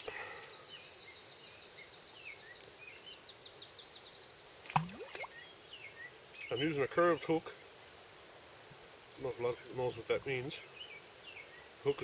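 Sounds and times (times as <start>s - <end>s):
bird chirps: 0.0s - 7.3s
faint outdoor ambience: 0.0s - 12.0s
songbird trilling: 4.8s - 7.3s.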